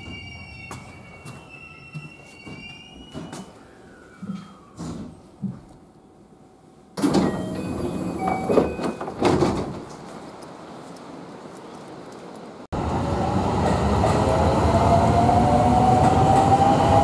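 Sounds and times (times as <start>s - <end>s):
standing train noise: 0.0s - 17.0s
train doors sliding open: 7.0s - 11.2s.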